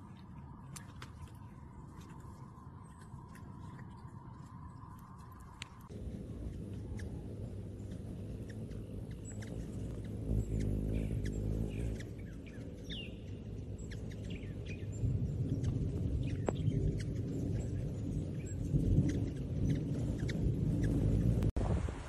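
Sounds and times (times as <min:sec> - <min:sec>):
hummingbird wings humming: 0:05.6 - 0:21.6.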